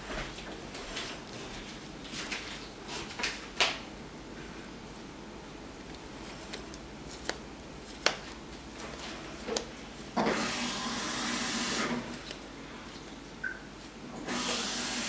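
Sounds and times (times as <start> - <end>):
dough rubbed between palms: 4.4 - 14.1.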